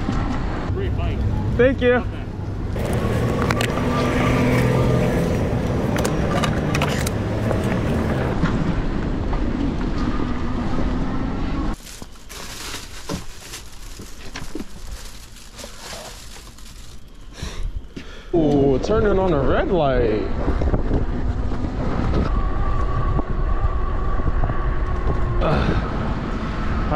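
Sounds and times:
road traffic noise: 0.0s - 18.3s, 20.3s - 26.9s
motor vehicle running: 2.5s - 17.2s.

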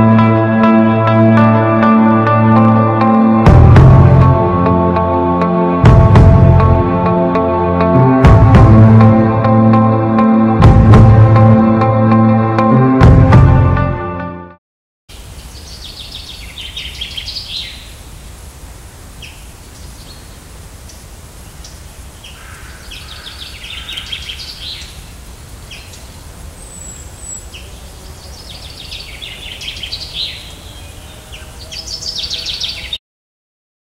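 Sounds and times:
music: 0.0s - 14.6s
chaffinch song: 15.1s - 33.0s.

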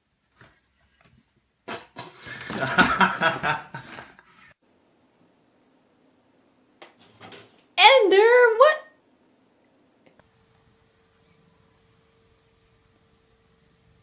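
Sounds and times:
person laughing: 2.2s - 4.2s.

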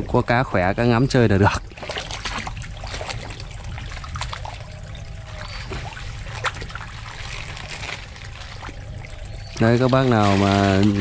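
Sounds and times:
water splashing into a pond: 1.3s - 11.0s.

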